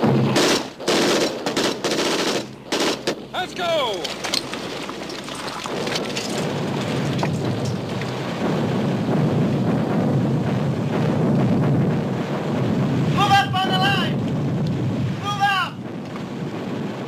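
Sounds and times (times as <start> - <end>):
crackling gunfire: 0.0 - 9.4
rumble of explosions: 0.0 - 17.0.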